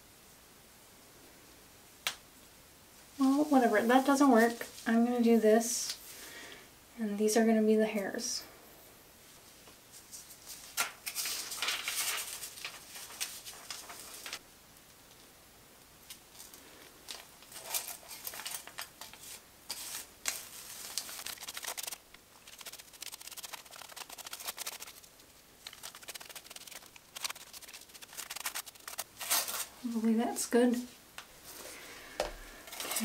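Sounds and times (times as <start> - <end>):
aluminium foil crinkling: 10.1 - 14.4, 16.0 - 30.0, 32.6 - 33.0
brush scraping on hair: 17.5 - 30.1.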